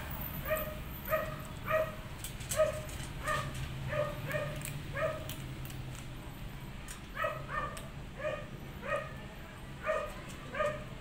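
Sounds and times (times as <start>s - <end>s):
kibble crunching clicks: 2.2s - 6.2s, 6.8s - 7.9s.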